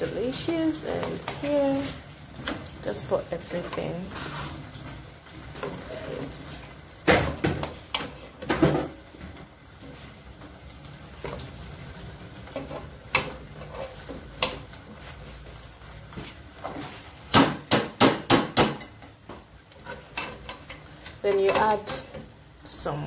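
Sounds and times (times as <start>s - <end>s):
spoon knocking and scraping a pot: 12.5s - 14.7s, 17.5s - 22.3s.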